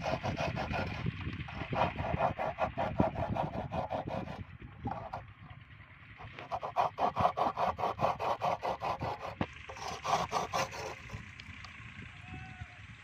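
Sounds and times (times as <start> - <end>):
metal blade scraping clay pot: 0.0 - 5.2, 6.2 - 11.2.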